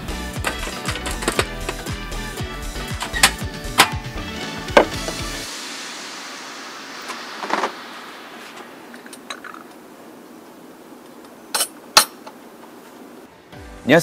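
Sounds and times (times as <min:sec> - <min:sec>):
faint steady hiss: 0:05.1 - 0:14.0
tableware clinking: 0:09.0 - 0:09.7, 0:11.5 - 0:12.2.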